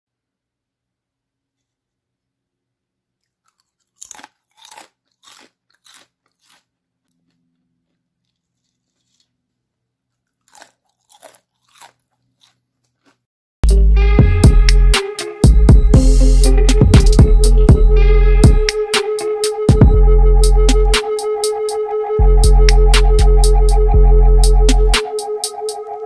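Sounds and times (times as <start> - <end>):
potato chips crunching: 3.2 - 13.3.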